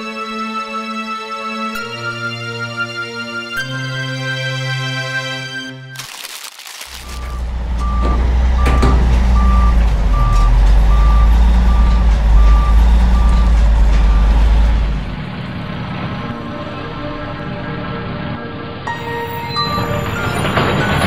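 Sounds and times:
deep engine rumble: 6.8s - 18.8s
truck reversing alarm beeping: 7.0s - 15.2s.

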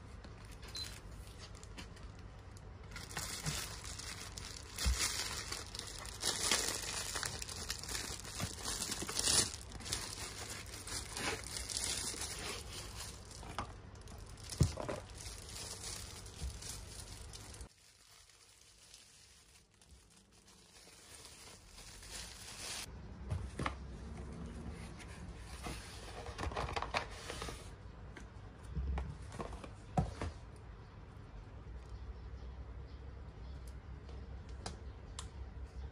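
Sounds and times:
plastic bag crinkling: 0.4s - 22.9s.

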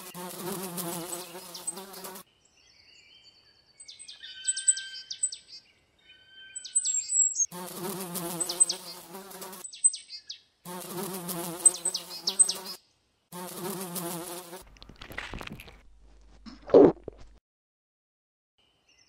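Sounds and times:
fly buzzing: 0.0s - 2.2s, 7.5s - 9.6s, 10.7s - 15.8s.

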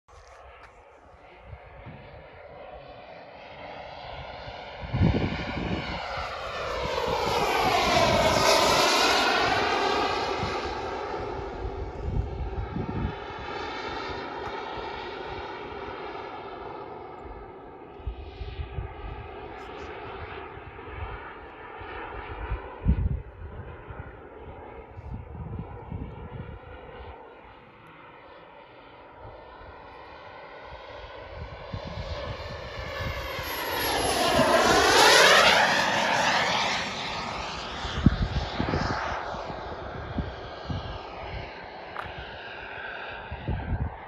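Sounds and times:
model jet turbine flying past: 0.1s - 44.0s
wind buffeting microphone: 1.3s - 2.4s, 4.1s - 15.4s, 22.1s - 27.1s, 31.2s - 44.0s.

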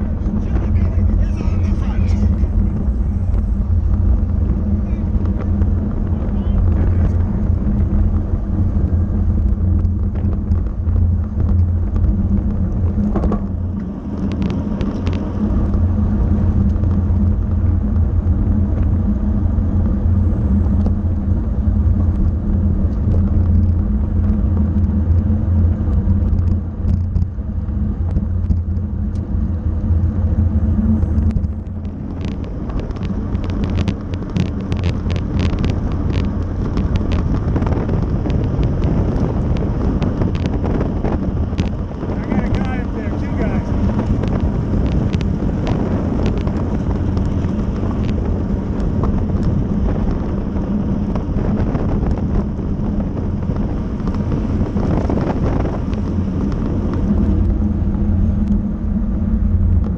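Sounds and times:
wind rumble on microphone: 0.0s - 59.9s.

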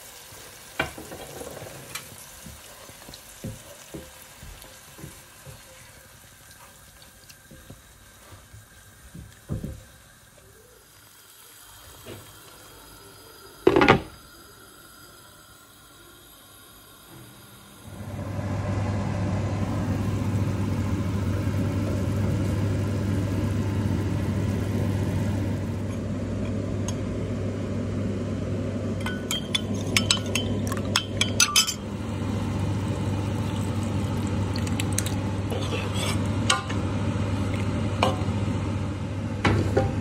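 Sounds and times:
metal clinks against a pot: 29.0s - 31.8s
utensil clank: 29.0s - 31.8s.

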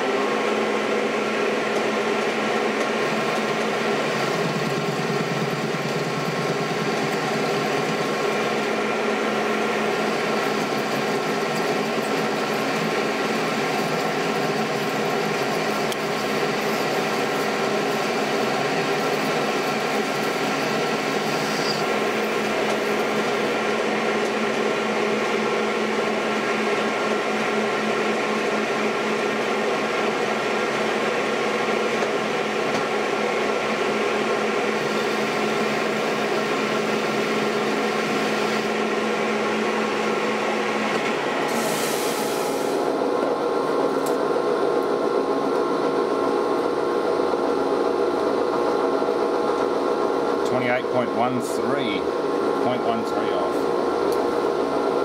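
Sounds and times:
metal lathe whining: 9.9s - 23.7s.

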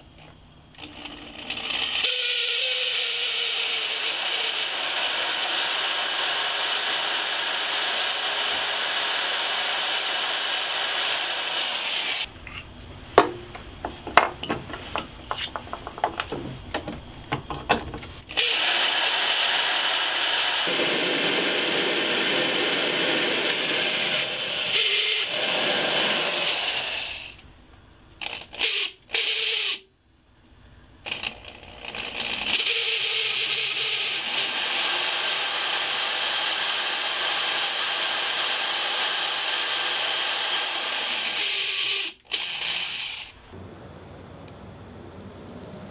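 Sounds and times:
drill press running: 0.8s - 12.2s, 13.2s - 27.3s
handling clicks and knocks: 12.4s - 18.2s.

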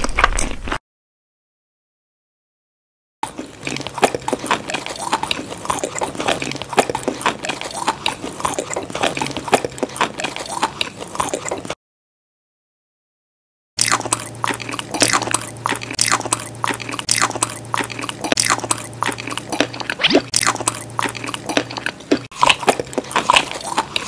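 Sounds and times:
crunchy chewing and biting: 0.0s - 0.8s, 3.2s - 11.8s, 13.8s - 24.0s
mouth clicks: 13.8s - 24.0s.

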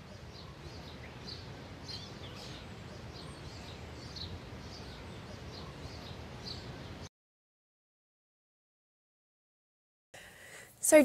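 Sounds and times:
faint bird chirps: 0.0s - 7.1s.

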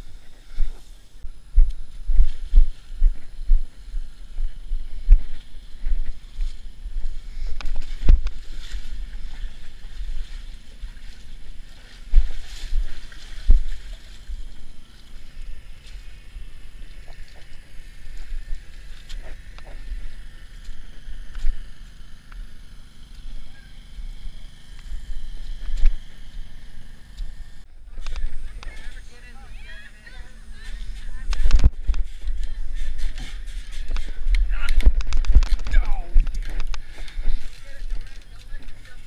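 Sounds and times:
steps in mud: 0.1s - 22.6s
wind thumps on microphone: 0.6s - 9.3s, 12.0s - 14.8s, 30.8s - 38.0s
water splashing and sloshing: 7.7s - 21.6s.

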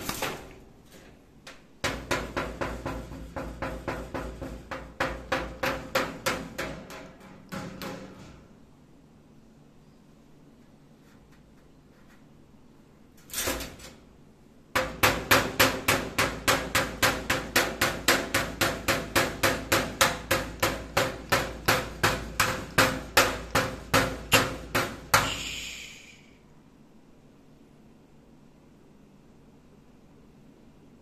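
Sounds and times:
parrot beak knocking on cage: 1.8s - 8.3s.

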